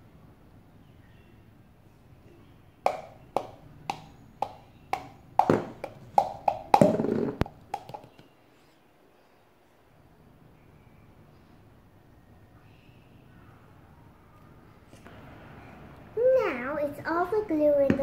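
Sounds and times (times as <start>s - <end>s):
plastic cup knocking on bowl: 2.9s - 8.2s.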